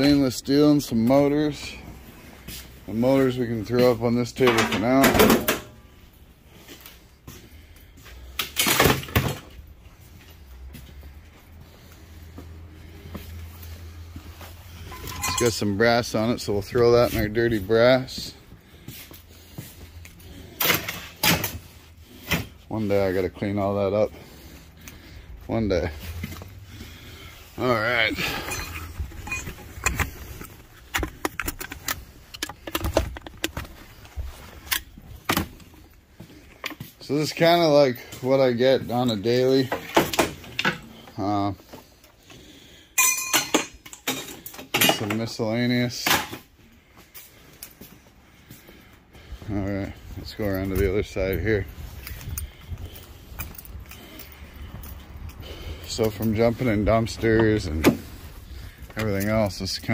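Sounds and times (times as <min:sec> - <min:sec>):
scrap metal clinking: 0:14.8 - 0:15.8, 0:28.0 - 0:30.6, 0:43.0 - 0:46.0.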